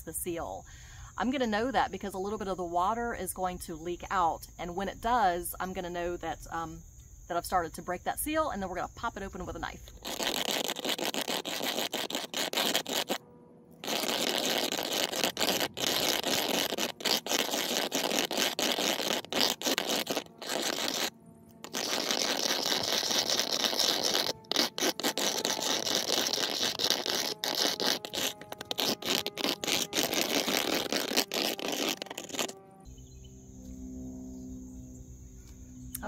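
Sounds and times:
metal can scraping on concrete: 13.8s - 32.6s.

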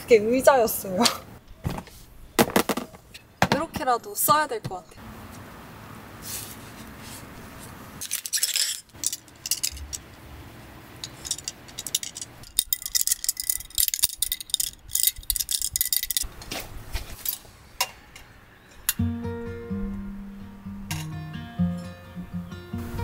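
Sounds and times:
metal tent pole clinking: 11.0s - 16.3s, 20.9s - 21.2s.

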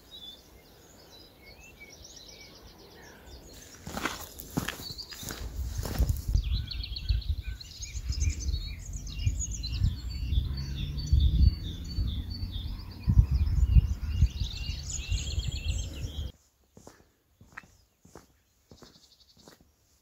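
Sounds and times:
songbirds chirping and trilling: 0.0s - 20.0s
low rumble: 7.2s - 16.3s.

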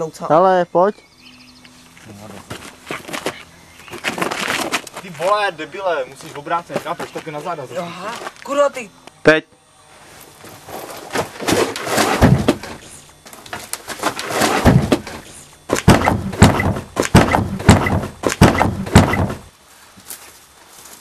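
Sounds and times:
scuffling: 2.0s - 5.4s
knocks and thuds on wooden boards: 11.2s - 12.8s, 13.5s - 19.5s
sharp knocks: 11.4s - 12.8s, 14.0s - 19.5s.

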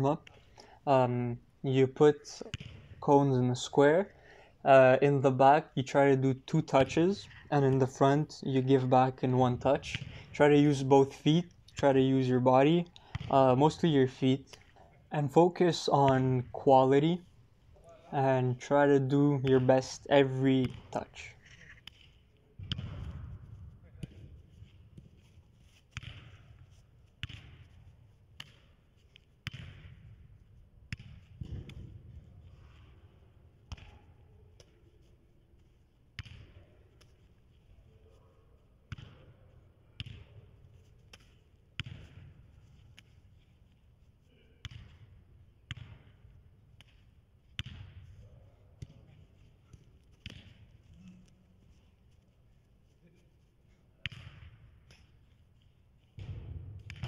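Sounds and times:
ball kicks echoing in hall: 2.4s - 3.1s, 9.5s - 10.4s, 12.8s - 13.8s, 20.6s - 43.2s, 44.3s - 52.1s, 53.9s - 57.0s.

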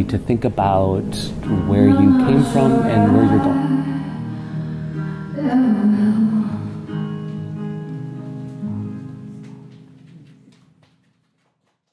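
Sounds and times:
music with held notes: 0.0s - 10.6s.

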